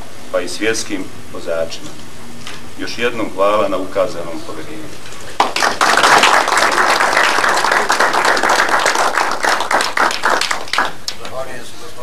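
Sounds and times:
people applauding: 5.3s - 11.3s.

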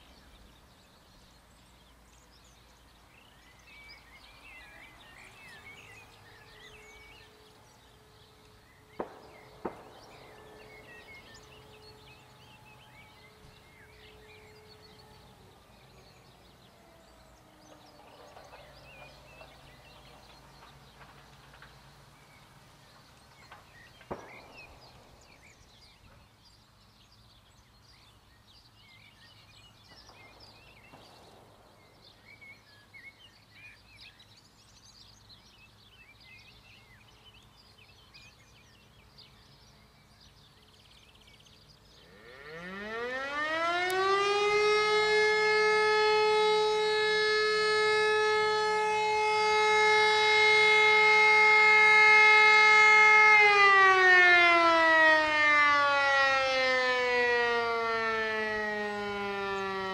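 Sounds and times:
birds chirping: 0.0s - 59.9s
faint outdoor ambience: 0.0s - 59.9s
siren wailing: 4.2s - 21.6s, 42.0s - 59.9s.

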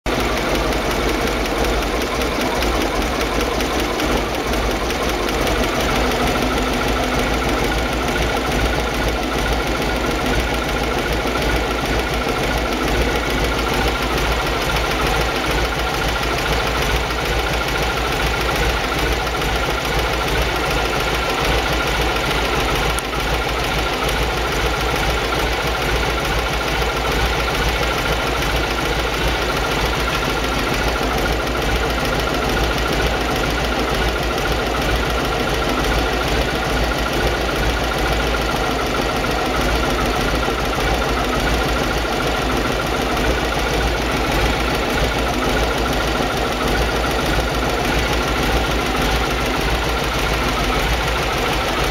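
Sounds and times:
engine idling: 0.0s - 51.9s.

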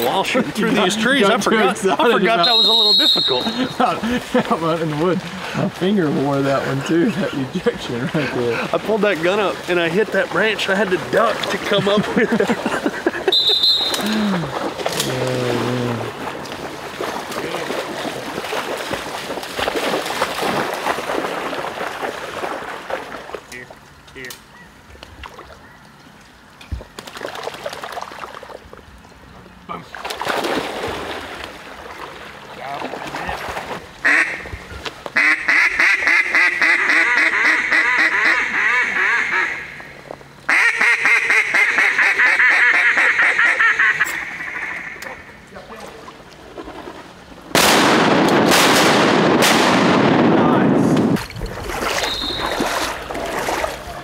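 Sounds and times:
duck call quacking: 2.4s - 3.9s, 13.3s - 14.2s, 34.0s - 34.5s, 35.2s - 39.8s, 40.5s - 45.4s
rain falling on water: 2.5s - 29.9s
dog splashing through water: 14.4s - 23.4s, 30.0s - 33.8s, 51.0s - 54.0s.

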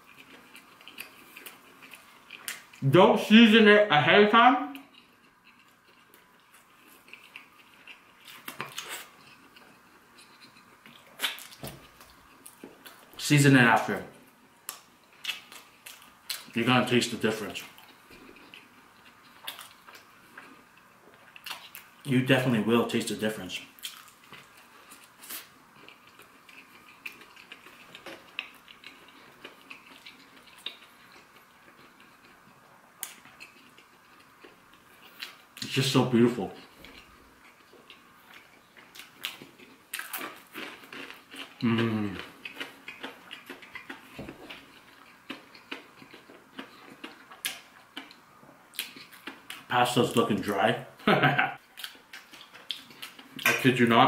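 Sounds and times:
person chewing food: 0.0s - 2.8s, 4.7s - 13.1s, 14.3s - 16.5s, 17.4s - 22.0s, 23.7s - 35.7s, 36.4s - 49.7s, 51.5s - 53.6s.

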